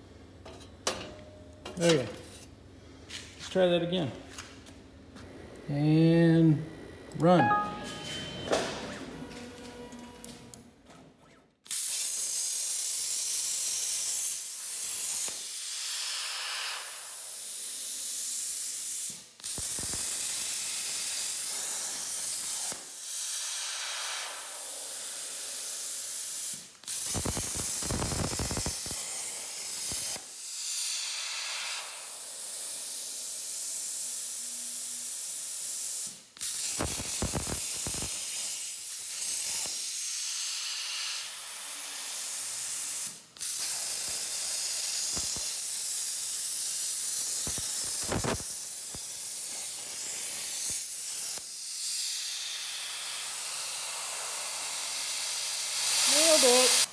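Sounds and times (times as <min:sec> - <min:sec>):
plasma torch hissing: 0:11.7 - 0:56.9.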